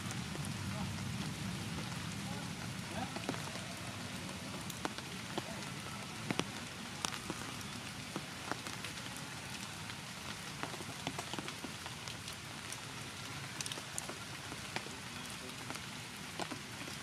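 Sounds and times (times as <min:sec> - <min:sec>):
rain on foliage: 0:00.0 - 0:17.0.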